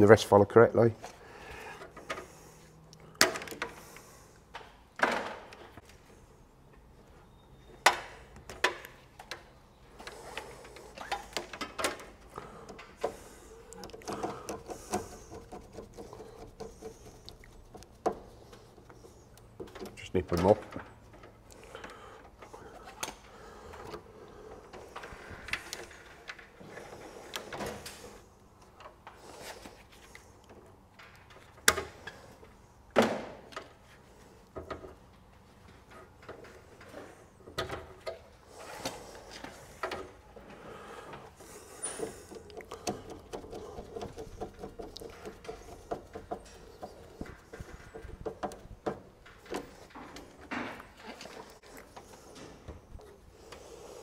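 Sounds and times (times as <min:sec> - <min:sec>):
tools clicking and tapping on plastic: 0:07.9 - 0:24.0, 0:41.4 - 0:51.1
cables rustling: 0:33.8 - 0:54.0.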